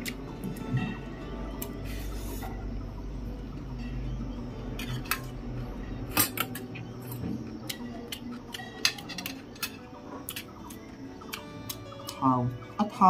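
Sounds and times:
metal spoon clinking on steel plate: 8.6 - 9.9.

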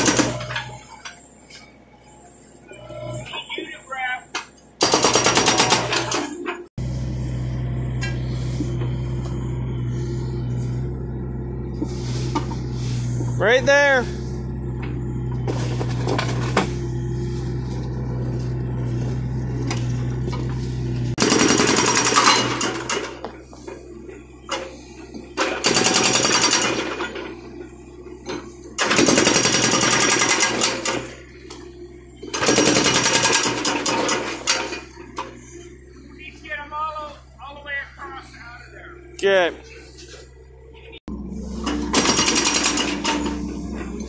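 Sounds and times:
hydraulic breaker pounding concrete: 0.0 - 0.8, 4.8 - 6.5, 11.8 - 23.8, 24.4 - 27.7, 28.3 - 31.6, 32.2 - 35.4, 41.4 - 44.0
excavator engine running: 0.0 - 44.0.

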